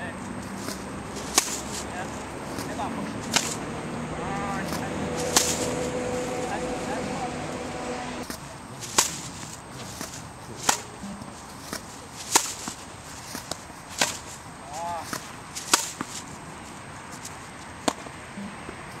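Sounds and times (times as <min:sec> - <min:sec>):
racquets striking tennis balls: 0:00.0 - 0:19.0.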